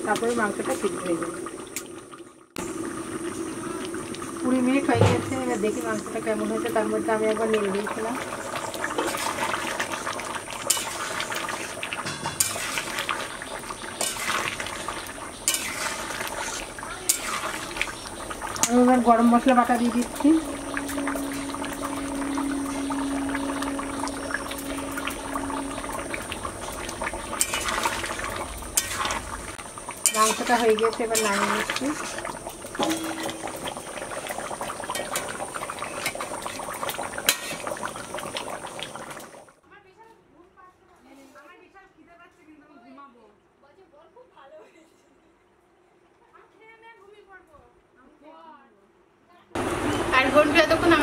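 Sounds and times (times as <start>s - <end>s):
curry bubbling in metal pot: 0.0s - 39.6s
metal spatula scraping a pan: 10.6s - 13.4s, 14.0s - 17.8s, 27.4s - 28.0s, 28.7s - 29.3s, 30.0s - 33.8s, 37.2s - 37.7s.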